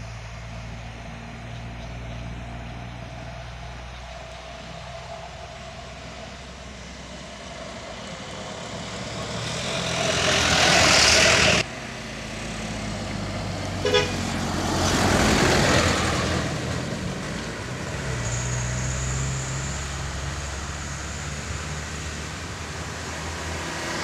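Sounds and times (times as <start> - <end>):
trucks passing: 0.0 - 24.0
short horn toot: 13.8 - 14.2.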